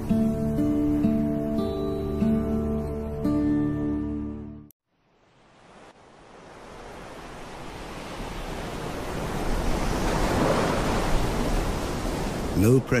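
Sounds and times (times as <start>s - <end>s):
wind: 0.0s - 13.0s
sea rushing: 5.2s - 13.0s.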